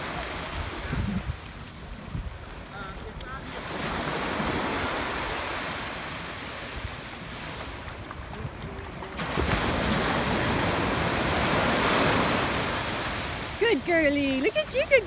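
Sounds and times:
wind rumble on microphone: 0.0s - 13.6s
small ocean waves breaking: 0.0s - 15.0s.

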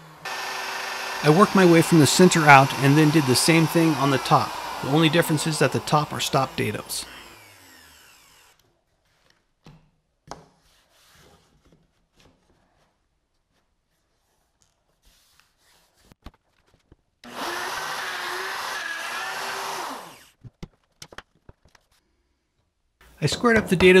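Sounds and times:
router whining and spinning down: 0.0s - 8.6s, 17.2s - 20.4s
knocks and rubbing of handling: 23.2s - 24.0s.

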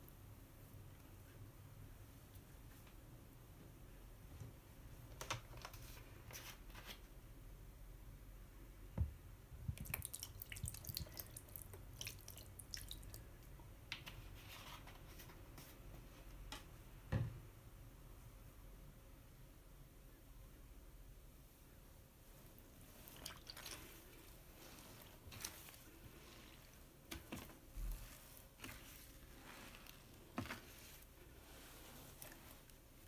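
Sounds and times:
soap pouring wet crackling: 9.7s - 13.4s, 22.8s - 33.0s.

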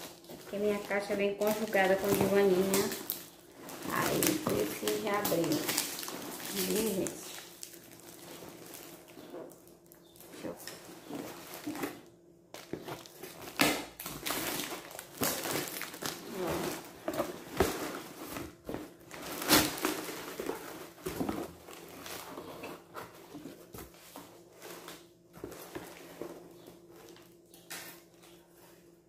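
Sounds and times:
plastic wrap and tape tearing: 0.0s - 22.9s
packing paper rustling: 0.0s - 28.9s.

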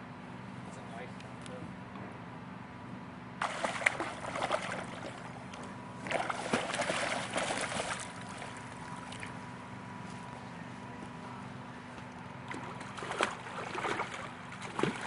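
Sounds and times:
water splashing and sloshing: 3.4s - 9.5s, 12.4s - 15.0s.

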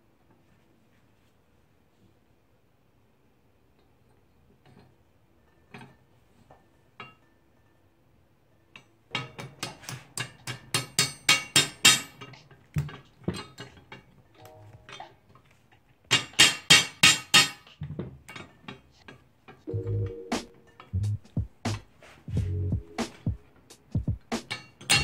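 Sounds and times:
hammer tapping metal punch: 9.2s - 13.7s, 16.1s - 17.7s, 24.4s - 25.0s.

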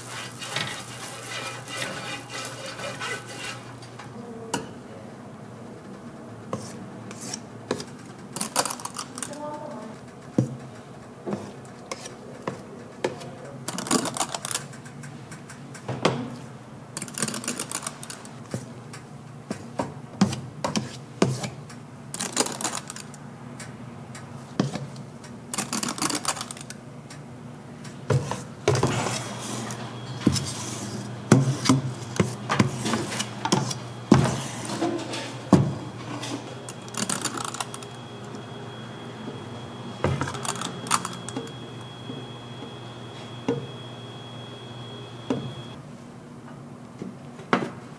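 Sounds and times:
utensils clattering against bowls: 0.0s - 4.8s, 7.8s - 9.4s, 11.3s - 14.8s, 17.0s - 18.6s, 22.2s - 23.1s, 25.6s - 26.7s, 28.1s - 38.4s, 40.0s - 41.9s
steady low hum: 26.7s - 46.4s.

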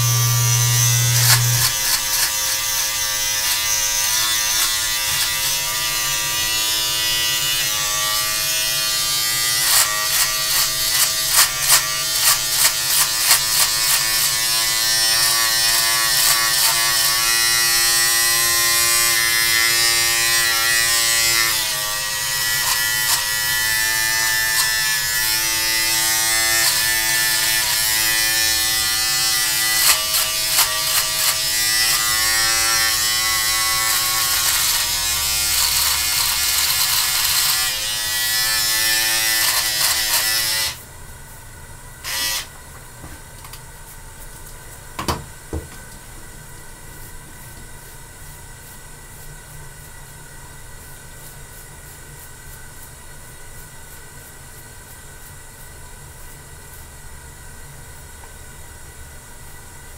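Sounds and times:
scratchy clicks: 0.0s - 2.2s
electric beard trimmer buzzing: 0.0s - 40.8s, 42.0s - 42.5s.

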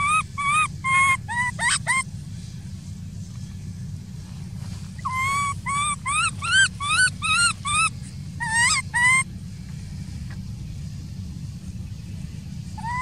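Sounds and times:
baby monkey crying: 0.0s - 2.1s, 5.0s - 9.3s, 12.8s - 13.0s.

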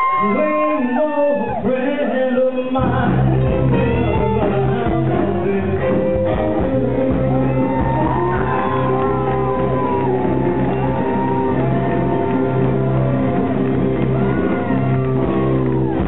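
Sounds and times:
audience cheering and shouting: 0.0s - 2.0s, 6.2s - 16.0s
live rock and roll band: 0.0s - 16.0s.

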